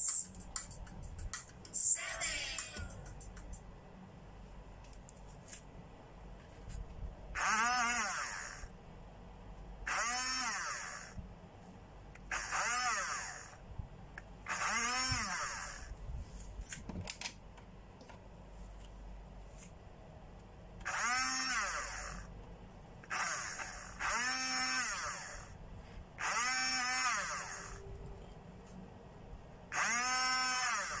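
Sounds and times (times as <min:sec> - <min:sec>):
small electric motors whirring: 0:07.4 - 0:08.7, 0:09.9 - 0:11.2, 0:12.3 - 0:13.6, 0:14.5 - 0:16.0, 0:20.8 - 0:22.3, 0:23.0 - 0:25.6, 0:26.2 - 0:28.0, 0:29.7 - 0:31.0.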